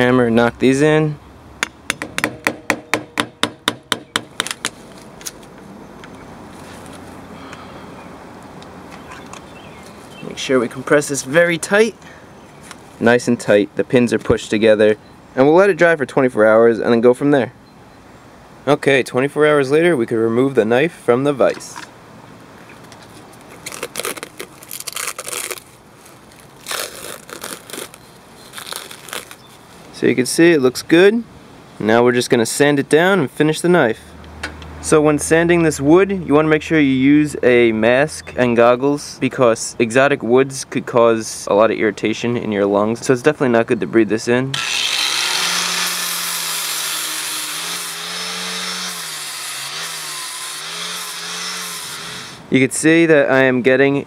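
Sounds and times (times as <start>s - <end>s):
plastic wrap crinkling and tearing: 23.5s - 29.6s
angle grinder sanding wood: 44.6s - 52.4s.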